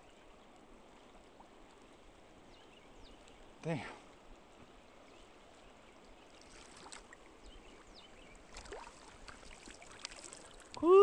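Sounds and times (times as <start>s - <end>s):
faint flowing creek water: 0.0s - 11.0s
small water splashes: 4.9s - 11.0s.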